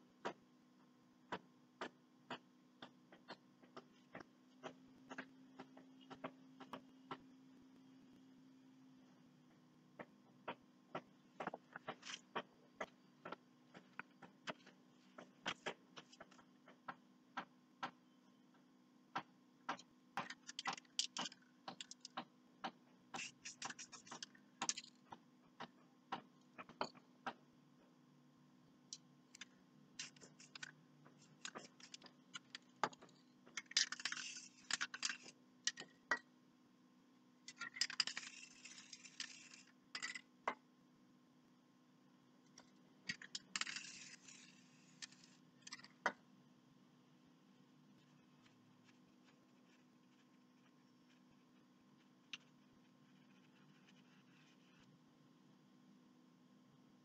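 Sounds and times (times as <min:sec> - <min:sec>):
low steady hum: 0:00.0 - 0:57.0
painting tools tapping and clicking: 0:01.2 - 0:07.3, 0:09.5 - 0:27.9, 0:28.9 - 0:36.3, 0:37.4 - 0:40.7.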